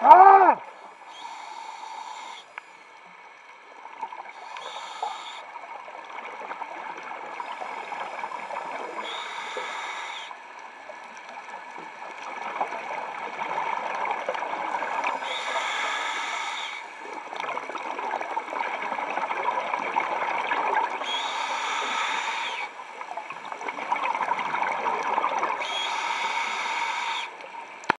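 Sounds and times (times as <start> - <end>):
regulator hissing inhale: 0.8 - 3.1, 4.3 - 5.7, 7.4 - 10.4, 14.9 - 17.2, 21.0 - 23.0, 25.6 - 27.4
exhaled bubbles rushing: 21.9 - 25.8.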